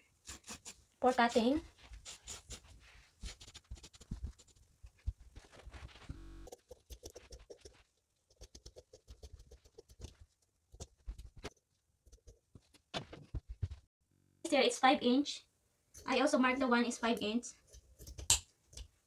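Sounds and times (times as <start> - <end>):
chalk scratching on fabric: 0.3 - 10.2.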